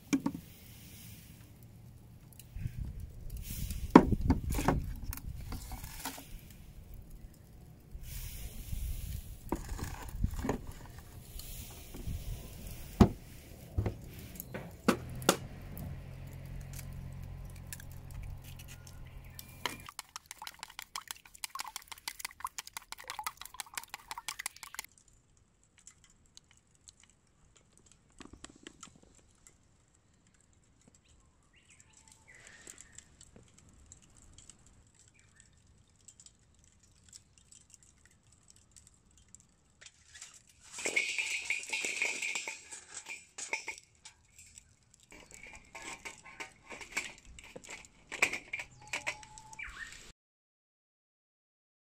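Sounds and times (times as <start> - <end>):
camp gear clicks and rustles: 2.2 - 7.4, 8.3 - 20.8, 23.0 - 49.9
charcoal clattering onto fire stand: 8.1 - 18.4, 40.1 - 49.4.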